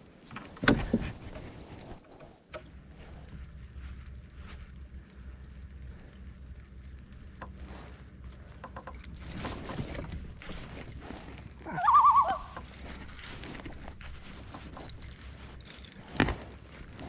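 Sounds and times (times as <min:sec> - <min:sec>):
warbling animal call: 0:11.6 - 0:12.7.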